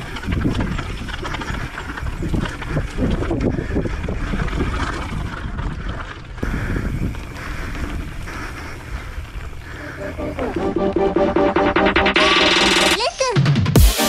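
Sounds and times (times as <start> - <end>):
wind buffeting microphone: 0.0 - 10.5
bike rolling on dirt trail: 0.0 - 11.5.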